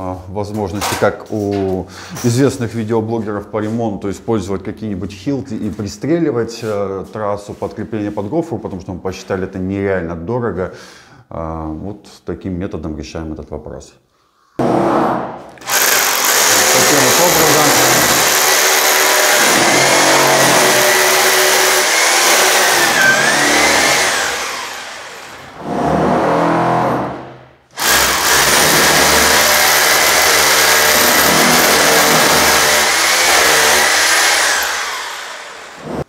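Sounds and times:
rotary hammer drilling into ceiling: 14.6s - 36.0s.

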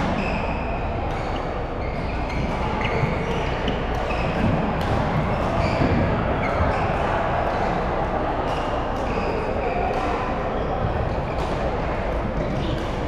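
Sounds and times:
racket hitting shuttlecock: 0.0s - 6.0s
shoes squeaking on court floor: 0.0s - 7.1s, 8.5s - 13.0s
echoing hall din: 0.0s - 13.0s.

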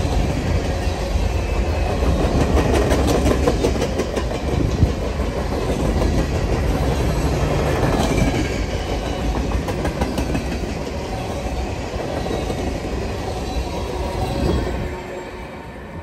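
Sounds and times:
steel wheels rumbling on rail: 0.0s - 16.0s.

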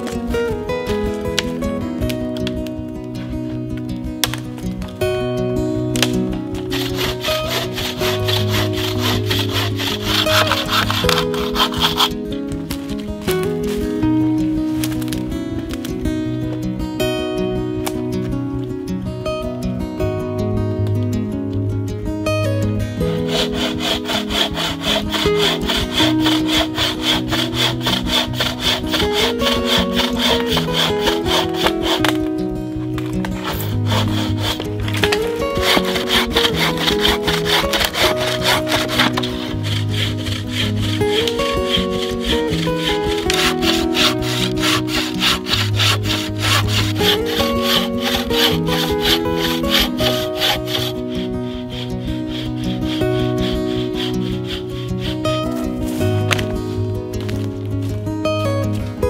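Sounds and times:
acoustic guitar music: 0.0s - 59.0s
saw cutting branch: 6.0s - 12.2s, 23.2s - 32.5s, 33.2s - 55.6s.

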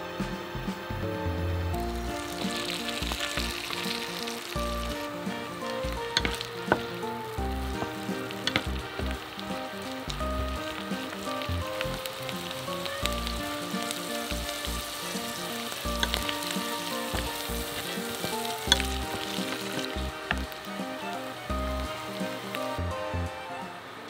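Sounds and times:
mushrooms sizzling in butter: 0.1s - 24.0s
spatula scraping pan: 2.1s - 22.8s.

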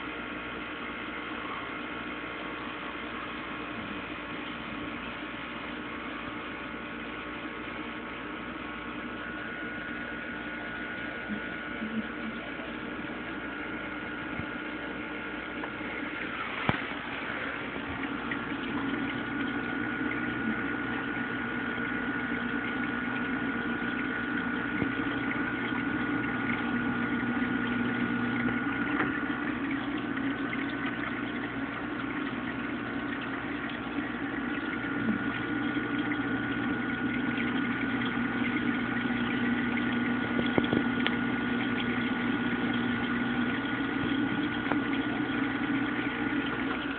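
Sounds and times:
aquarium pump humming: 0.0s - 46.9s
high constant whine: 8.5s - 46.9s.

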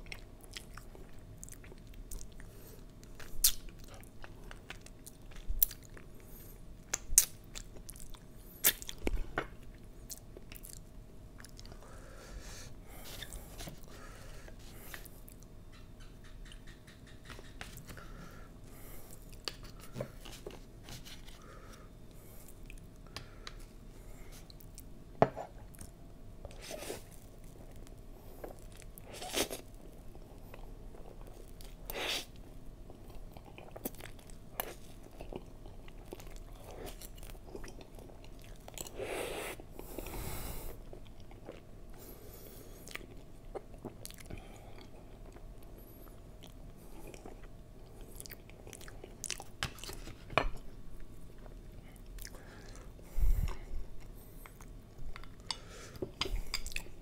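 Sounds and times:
chewing: 32.9s - 39.0s, 42.8s - 57.0s.

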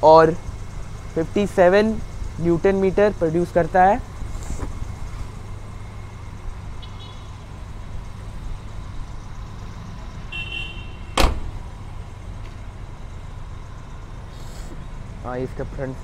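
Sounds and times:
van engine idling: 0.0s - 16.0s
van door slamming: 11.0s - 11.9s.

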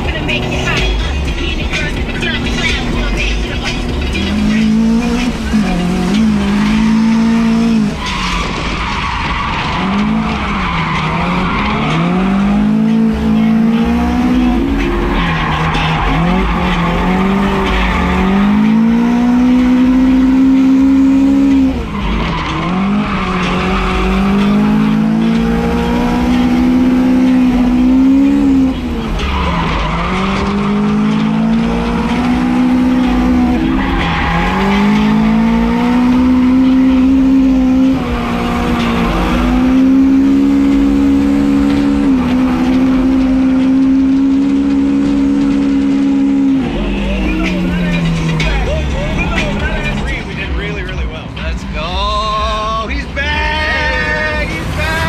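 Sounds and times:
car engine revving: 0.0s - 55.0s
tyre squeal: 2.2s - 50.2s.

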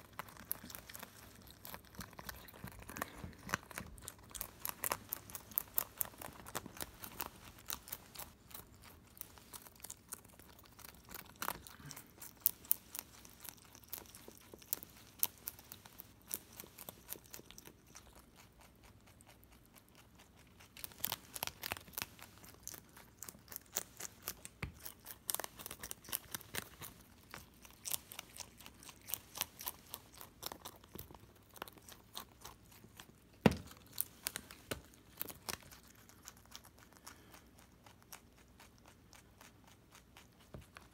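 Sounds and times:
rabbit crunching leaf: 0.0s - 40.9s.

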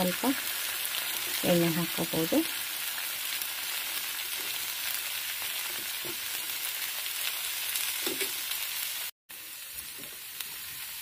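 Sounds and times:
dosa sizzling on hot griddle: 0.0s - 11.0s.

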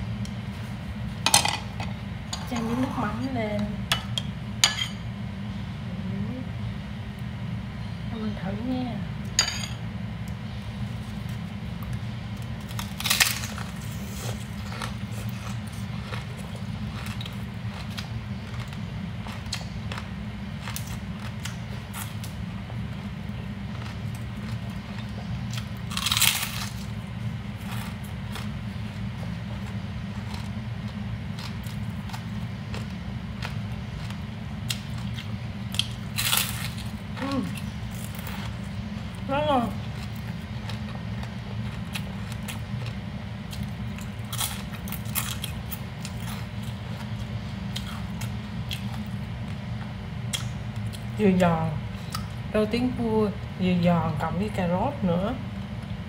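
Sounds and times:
steady low hum: 0.0s - 56.0s
person chewing crunchy food: 10.7s - 39.2s, 39.8s - 51.2s.

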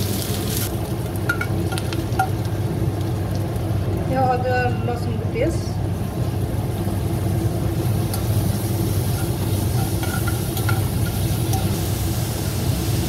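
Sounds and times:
onions sizzling in a pan: 0.0s - 13.0s
steady low hum: 0.0s - 13.0s.

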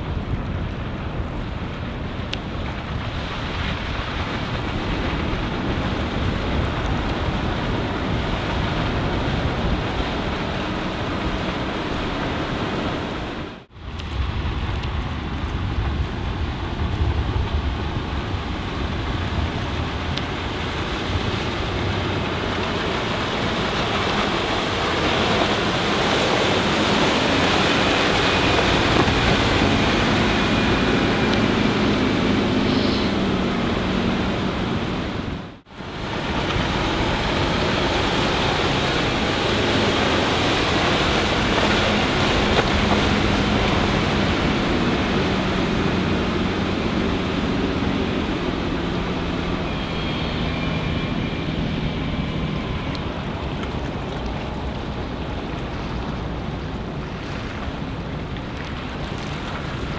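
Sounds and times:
faint low boat engine drone: 0.0s - 59.9s
rush of water and wake: 0.0s - 59.9s
wind buffeting microphone: 0.0s - 59.9s.

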